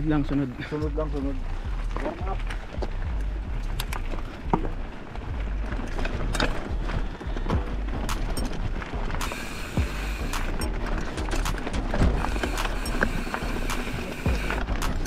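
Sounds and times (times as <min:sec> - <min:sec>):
bike rattling over rough trail: 0:00.0 - 0:15.0.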